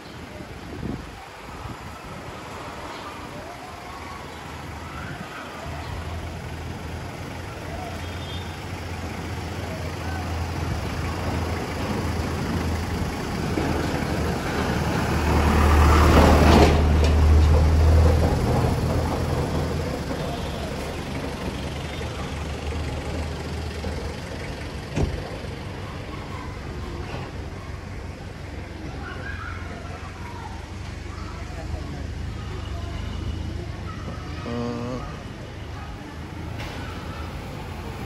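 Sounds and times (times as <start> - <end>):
street noise: 0.0 - 38.0
vehicle engine passing by: 8.6 - 38.0.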